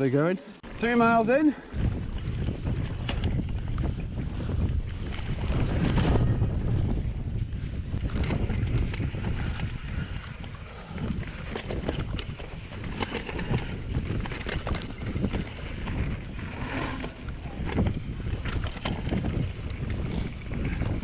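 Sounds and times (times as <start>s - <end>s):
wind buffeting microphone: 0.6s - 21.0s
bike clicks and knocks: 2.1s - 6.2s, 11.1s - 21.0s
tyres rumbling over dirt: 7.9s - 21.0s.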